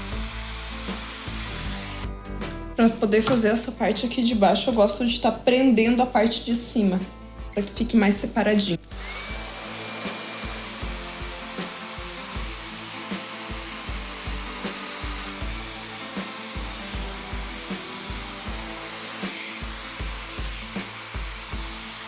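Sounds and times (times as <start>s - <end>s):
hair dryer blowing: 0.0s - 2.1s, 8.9s - 22.0s
background music with beat: 0.0s - 3.5s, 8.8s - 22.0s.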